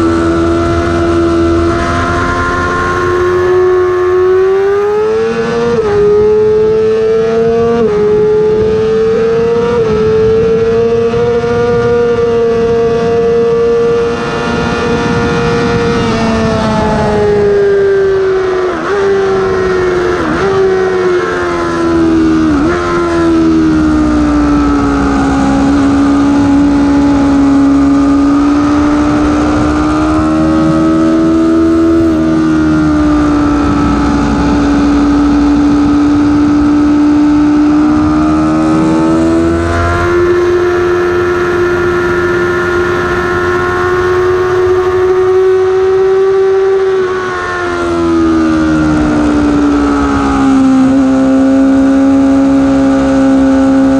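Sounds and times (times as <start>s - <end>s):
wind rush: 0.0s - 45.7s
motorcycle engine revving: 0.0s - 53.9s.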